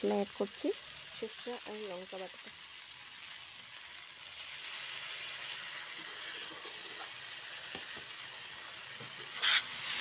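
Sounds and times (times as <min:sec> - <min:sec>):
vegetables sizzling in oil: 0:00.0 - 0:10.0
spatula scraping pan: 0:09.0 - 0:10.0.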